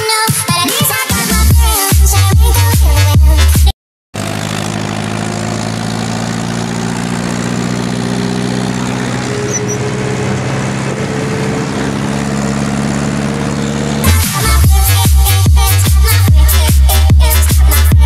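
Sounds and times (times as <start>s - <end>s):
tractor diesel engine running: 4.2s - 18.0s.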